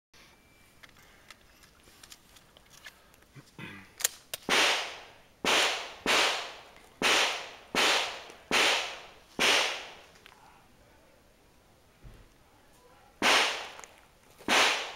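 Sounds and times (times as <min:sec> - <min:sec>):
pistol shots with echo: 0:04.5 - 0:10.0, 0:13.2 - 0:13.8, 0:14.5 - 0:14.9.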